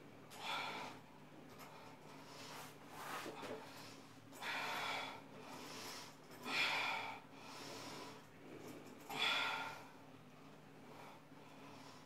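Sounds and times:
woman breathing hard: 0:00.3 - 0:02.8, 0:03.4 - 0:08.3, 0:09.0 - 0:10.0.

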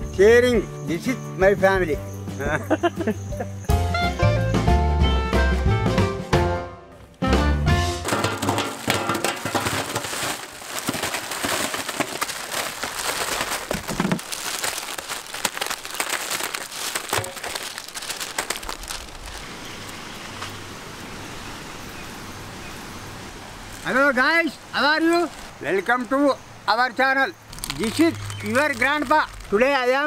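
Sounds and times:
plastic wrappers crinkling: 0:08.0 - 0:20.0, 0:25.1 - 0:25.6, 0:27.5 - 0:30.0.

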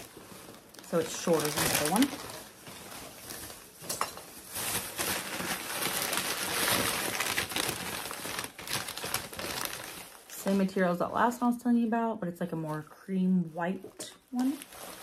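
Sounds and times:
packaging crinkling and rustling: 0:00.0 - 0:10.8, 0:13.8 - 0:15.0.

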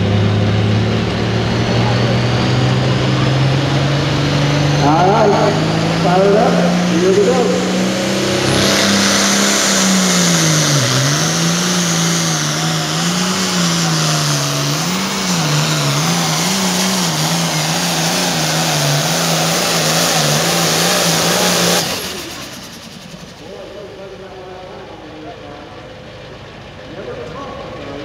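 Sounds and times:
tractor diesel engine at full power: 0:00.0 - 0:28.0
high whine: 0:01.0 - 0:18.4.

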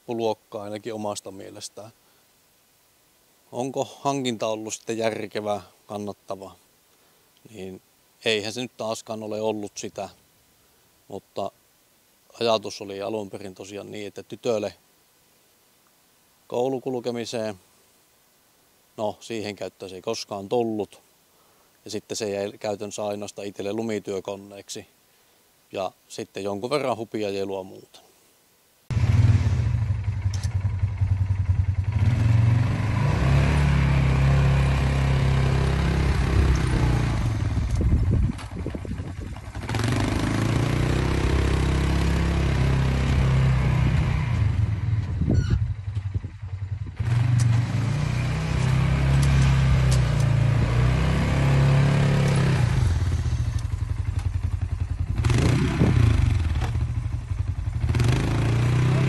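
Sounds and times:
atv engine revving: 0:28.9 - 0:59.0.

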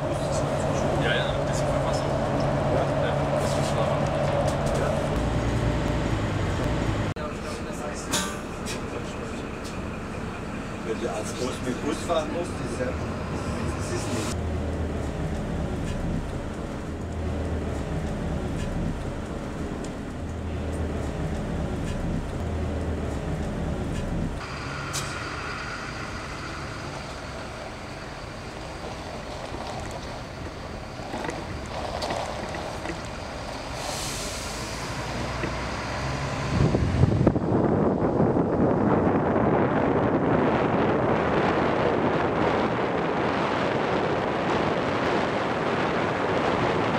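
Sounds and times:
bus engine and road rumble: 0:00.0 - 0:46.9
air hiss: 0:33.7 - 0:34.9.

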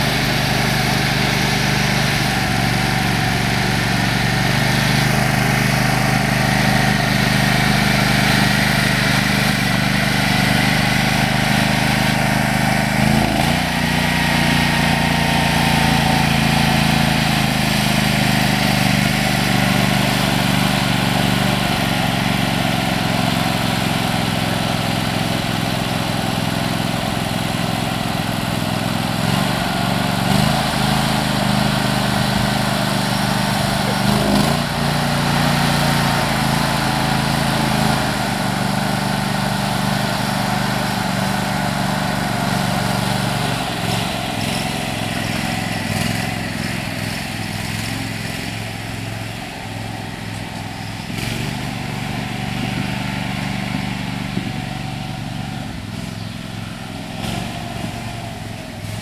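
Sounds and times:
small engine running: 0:00.0 - 0:59.0
water churning: 0:31.1 - 0:39.4.

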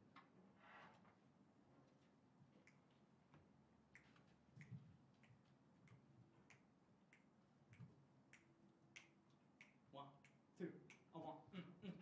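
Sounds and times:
faint finger snaps: 0:02.6 - 0:02.9, 0:03.9 - 0:11.1.

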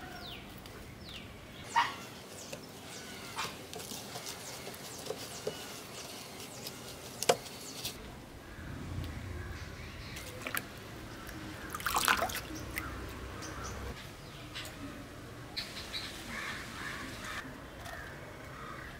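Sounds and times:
leaves splashing into water: 0:10.2 - 0:12.9.

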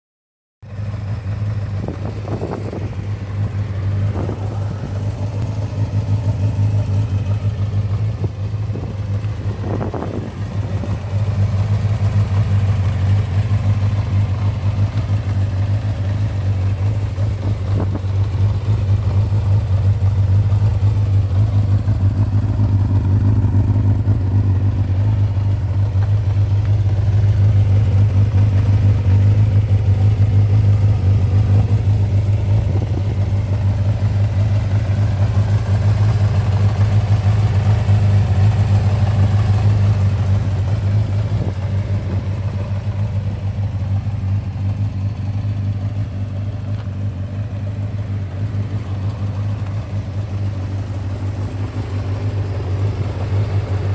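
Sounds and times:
motorcycle engine running: 0:00.6 - 0:53.9.

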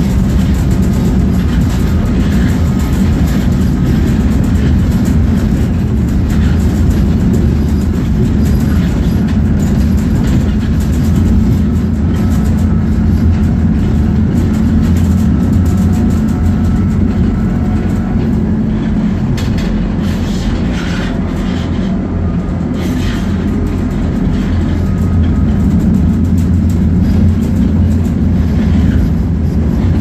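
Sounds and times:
tram rumbling: 0:00.0 - 0:30.0
wheels clicking on rails: 0:00.0 - 0:30.0.

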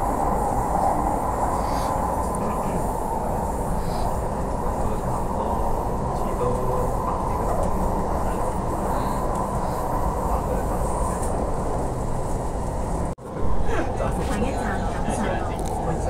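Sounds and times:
train running on track: 0:00.0 - 0:16.0.

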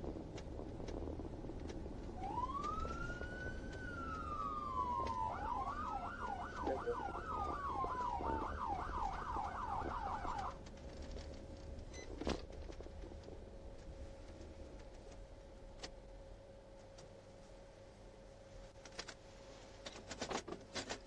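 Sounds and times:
low road and engine rumble: 0:00.0 - 0:16.2
police siren wailing and yelping: 0:02.2 - 0:10.6.

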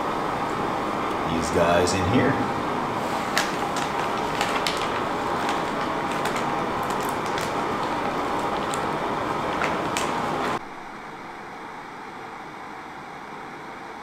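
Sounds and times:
plastic bag crinkling: 0:03.0 - 0:10.6.

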